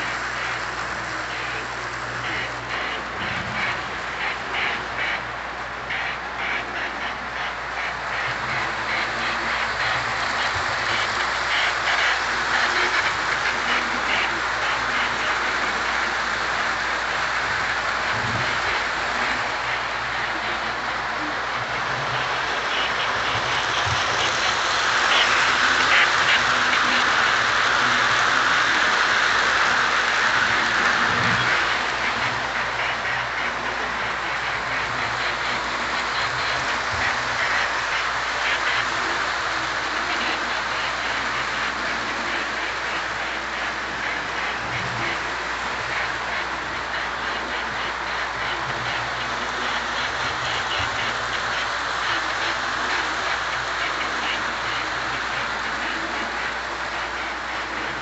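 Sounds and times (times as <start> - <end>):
model train wheels on rail: 0.0 - 58.0
steam locomotive chuffing: 0.0 - 58.0.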